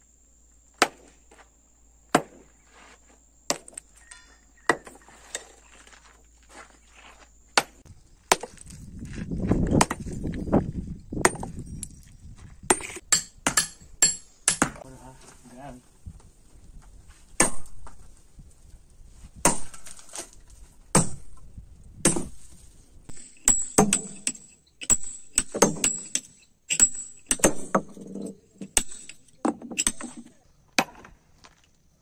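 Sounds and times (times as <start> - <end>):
hammer striking steel wedges: 3.5 - 5.5, 12.7 - 14.8, 17.4 - 18.0, 22.0 - 22.5, 23.1 - 31.1.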